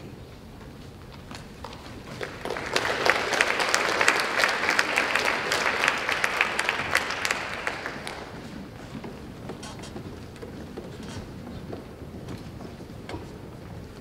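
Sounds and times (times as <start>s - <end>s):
audience applauding: 1.7s - 8.5s.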